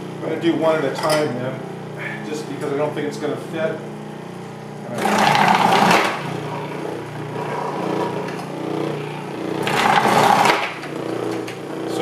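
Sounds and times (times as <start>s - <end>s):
food processor motor hum: 0.0s - 12.0s
carrot being sliced in processor: 4.3s - 12.0s.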